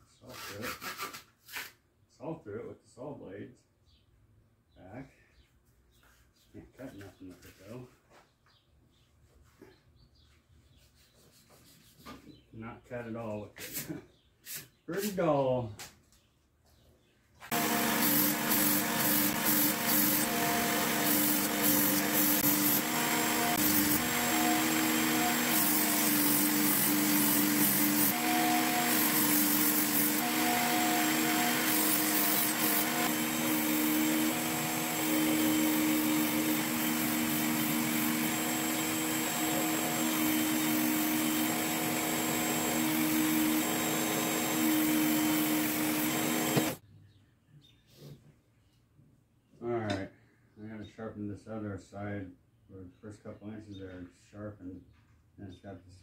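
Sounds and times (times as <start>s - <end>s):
belt grinding on blade: 17.5s - 46.8s
sharpener motor hum: 17.5s - 46.8s.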